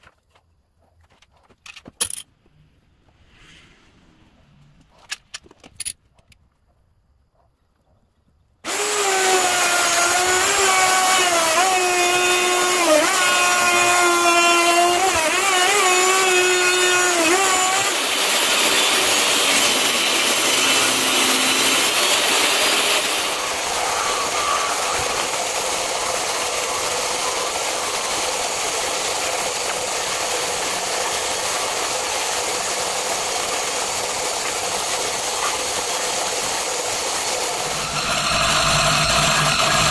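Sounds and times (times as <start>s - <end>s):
disc sander grinding: 8.7s - 39.9s
table saw cutting wood: 8.7s - 39.9s.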